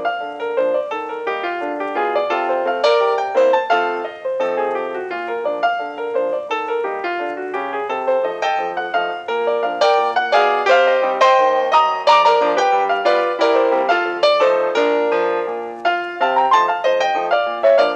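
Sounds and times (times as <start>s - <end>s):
piano music: 0.0s - 17.9s.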